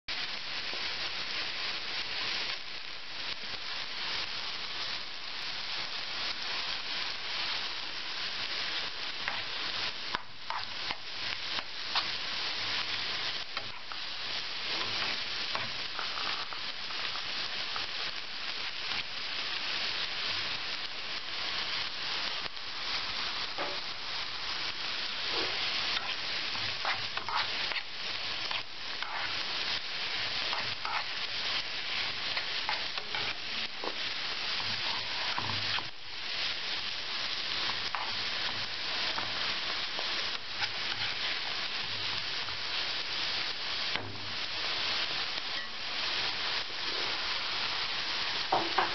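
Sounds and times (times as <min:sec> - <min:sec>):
onion sizzling in a frying pan: 0:00.1 - 0:48.9
spatula scraping a pan: 0:09.2 - 0:12.1, 0:25.2 - 0:35.9, 0:37.8 - 0:39.4, 0:40.0 - 0:42.2.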